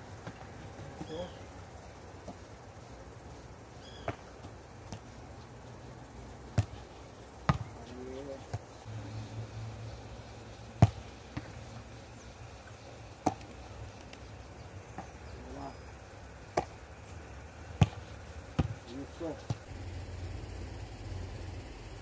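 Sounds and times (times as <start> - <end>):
football thudding into gloves: 7.4 - 7.8, 17.8 - 18.9.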